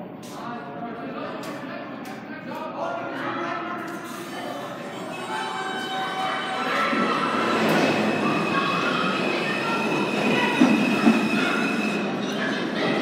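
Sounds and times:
subway train rumble: 0:04.0 - 0:13.0
steel wheels squealing on rails: 0:04.1 - 0:13.0.

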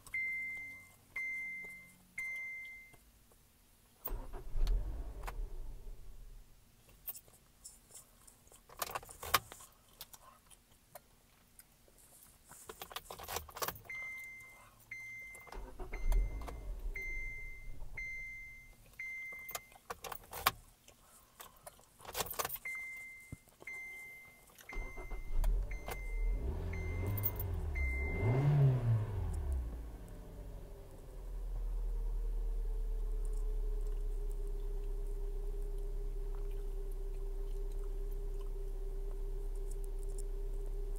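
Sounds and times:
car warning chime beeping: 0:00.0 - 0:03.0, 0:13.8 - 0:19.8, 0:22.6 - 0:31.4
car engine starting and revving: 0:04.1 - 0:06.4, 0:15.5 - 0:18.5, 0:24.7 - 0:40.9.

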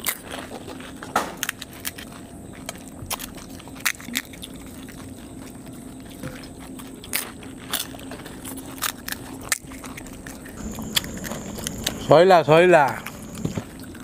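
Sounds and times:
crisp shells cracking and crunching: 0:00.0 - 0:05.7, 0:06.8 - 0:12.0
steady low hum: 0:09.7 - 0:14.0.

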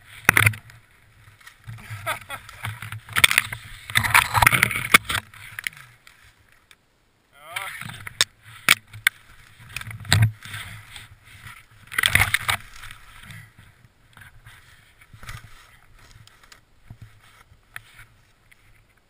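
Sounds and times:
snow crunching: 0:00.0 - 0:06.5, 0:07.4 - 0:18.5
branches scraping and rustling: 0:00.0 - 0:06.8, 0:07.4 - 0:19.0.

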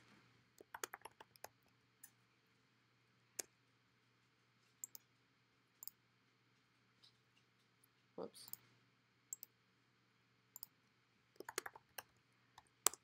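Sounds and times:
key or mouse clicks: 0:00.6 - 0:01.5, 0:04.8 - 0:05.0, 0:11.4 - 0:12.0
keyboard typing: 0:00.6 - 0:01.6, 0:04.8 - 0:05.0, 0:11.4 - 0:13.0.

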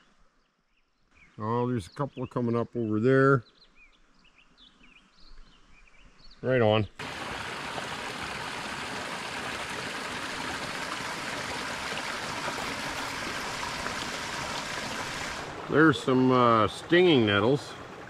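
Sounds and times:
creek splashing over rocks: 0:07.0 - 0:18.0.

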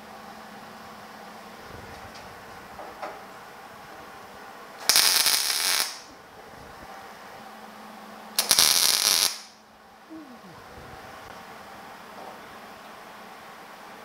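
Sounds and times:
welder arc buzzing: 0:04.8 - 0:06.2, 0:08.4 - 0:09.6.

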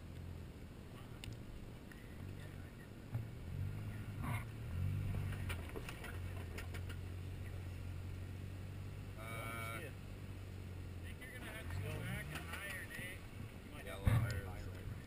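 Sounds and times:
car engine running at low revs: 0:00.0 - 0:15.0
stones knocking under tyres: 0:05.0 - 0:07.1.

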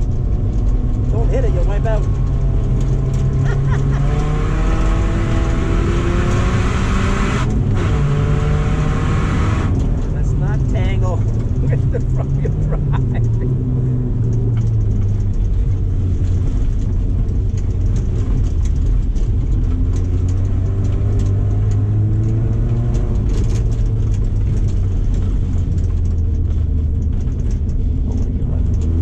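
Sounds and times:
car engine running hard: 0:00.0 - 0:29.0.

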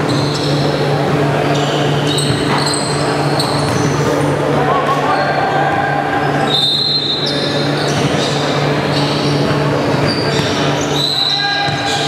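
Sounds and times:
shoe squeaks: 0:00.0 - 0:00.8, 0:01.4 - 0:04.1, 0:06.2 - 0:12.0.

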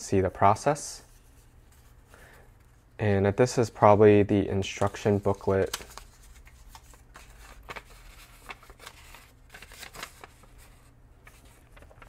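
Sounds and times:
paper rustling: 0:04.6 - 0:12.0.

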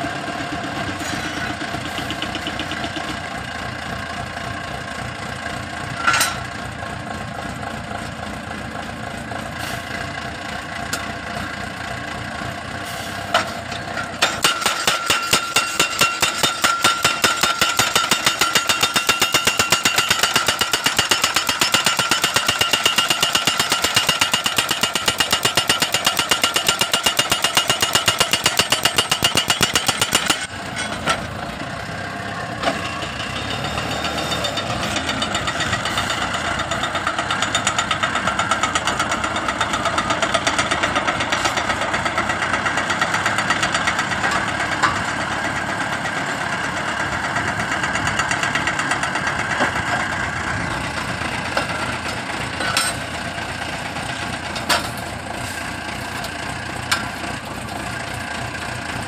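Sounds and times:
post driver engine running: 0:00.0 - 0:59.0
metal clanks: 0:05.9 - 0:06.6, 0:13.2 - 0:31.3, 0:50.8 - 0:53.3, 0:54.1 - 0:57.8
hammer pounding steel post: 0:13.4 - 0:31.0.

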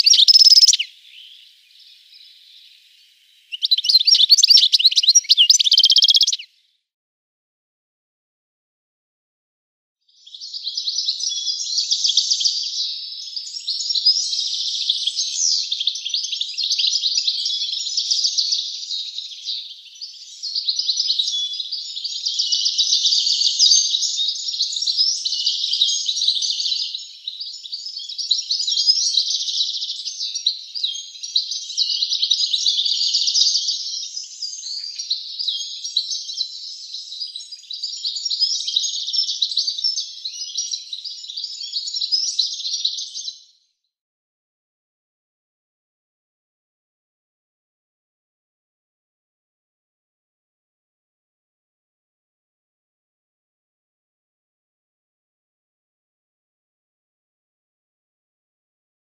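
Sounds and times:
bird twittering song: 0:00.0 - 0:06.5, 0:10.2 - 0:43.6.

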